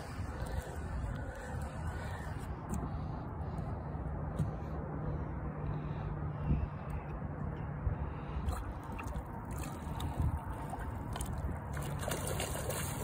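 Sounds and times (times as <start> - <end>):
fish thrashing and splashing: 8.5 - 13.0.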